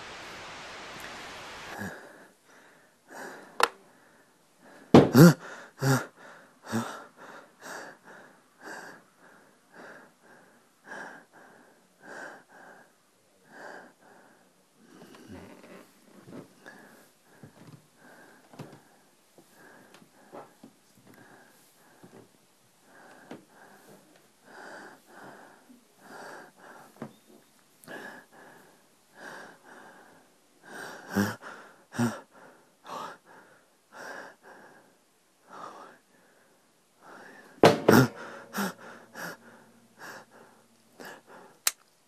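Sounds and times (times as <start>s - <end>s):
person breathing heavily: 1.7s - 15.1s, 16.6s - 22.2s, 22.8s - 27.1s, 27.8s - 41.7s
sharp knocks: 37.6s - 38.4s
thumps: 37.6s - 38.7s.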